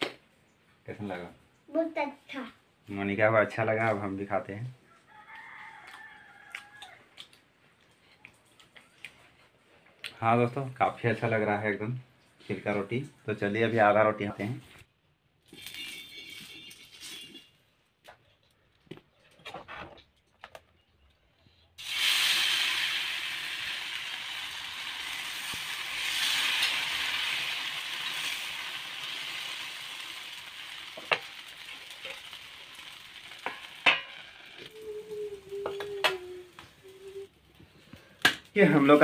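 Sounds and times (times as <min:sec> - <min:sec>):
batter sizzling on hot iron: 0:21.8 - 0:37.6.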